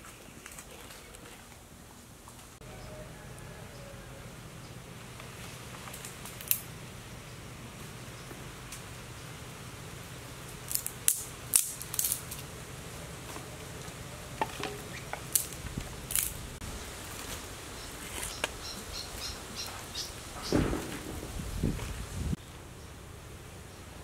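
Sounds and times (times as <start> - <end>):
twigs snapping: 5.8 - 6.7, 10.6 - 12.5, 14.4 - 16.4.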